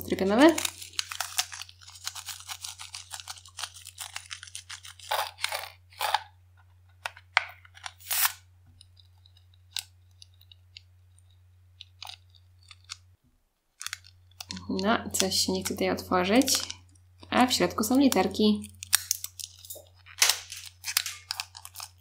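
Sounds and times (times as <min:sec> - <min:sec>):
scissors crunching rubber: 0:00.7 - 0:06.3.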